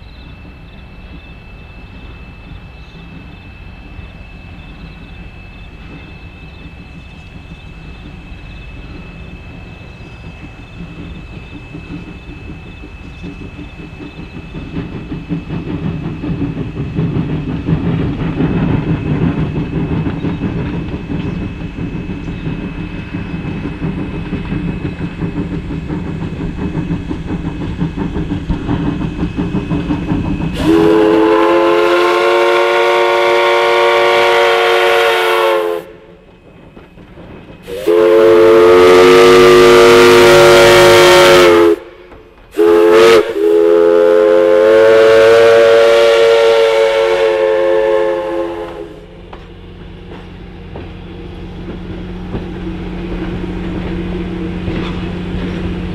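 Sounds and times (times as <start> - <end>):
steam locomotive exhaust rumble: 0.0 - 55.9
steam whistle blasts: 30.6 - 36.1, 37.7 - 42.0, 42.6 - 49.1.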